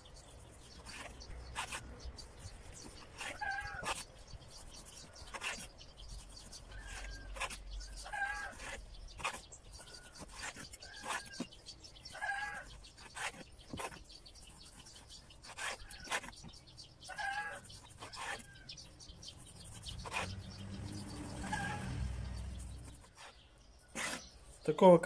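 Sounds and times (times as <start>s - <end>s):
bird calling: 2.8s - 5.7s.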